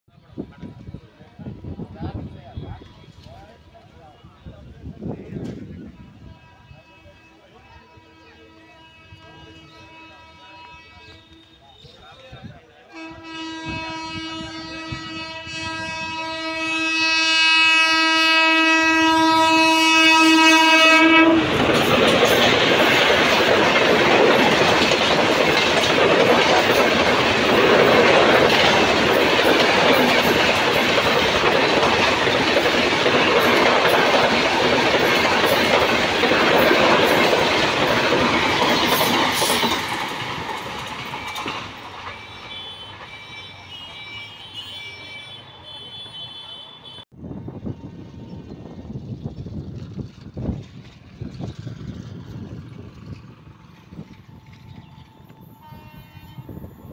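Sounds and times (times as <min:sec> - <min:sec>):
train coaches rumbling: 0:00.1 - 0:56.9
train horn blast: 0:05.5 - 0:12.0, 0:12.9 - 0:22.2, 0:41.2 - 0:47.0, 0:55.0 - 0:56.9
wheels clattering over rail joints: 0:21.4 - 0:43.2.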